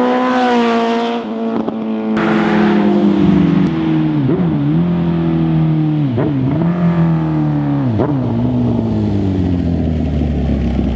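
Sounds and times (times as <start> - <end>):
motorcycle engine running hard: 1.6 - 10.9.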